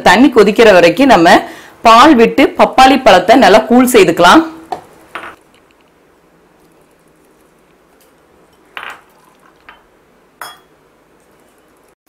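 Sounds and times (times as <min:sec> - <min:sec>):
milk pouring: 0:08.5 - 0:09.8
bowls clinking on steel jar: 0:08.5 - 0:10.7.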